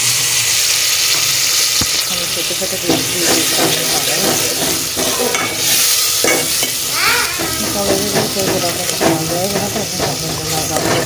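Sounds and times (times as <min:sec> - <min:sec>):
food sizzling in a pot: 0:00.0 - 0:11.0
metal spoon scraping a pot: 0:02.9 - 0:11.0.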